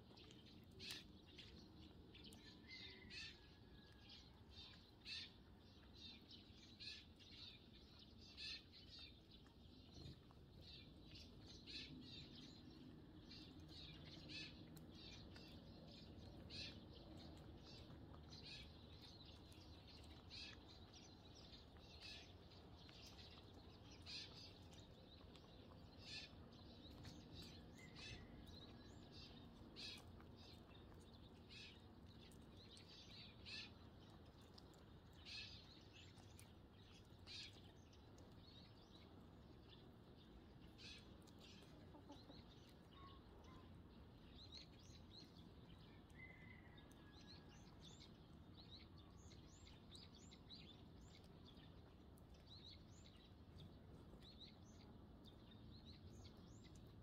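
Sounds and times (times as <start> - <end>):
sparrows chirping: 0.0 - 57.0.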